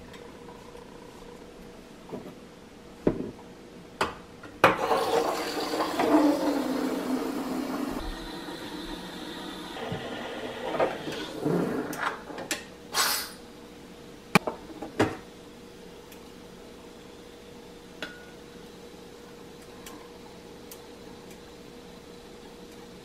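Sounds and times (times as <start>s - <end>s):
steam wand hissing and gurgling: 4.8s - 12.0s, 12.9s - 13.4s.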